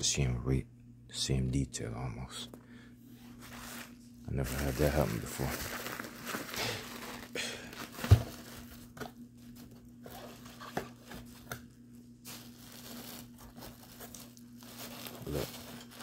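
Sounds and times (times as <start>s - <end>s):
bubble wrap crinkling: 3.3s - 16.0s.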